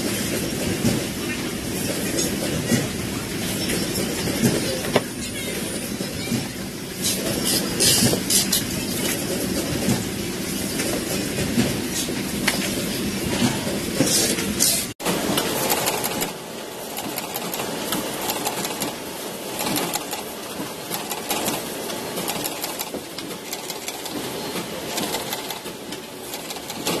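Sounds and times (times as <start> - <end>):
machinery clattering clicks: 13.4 - 27.0.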